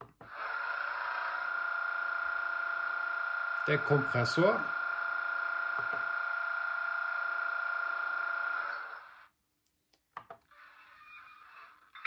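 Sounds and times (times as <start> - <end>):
model air compressor hum: 0.2 - 9.3.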